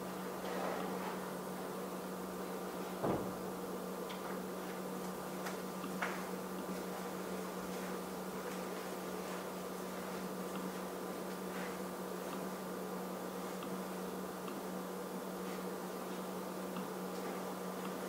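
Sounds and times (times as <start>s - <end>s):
steady low hum: 0.0s - 18.0s
knock: 3.0s - 3.4s.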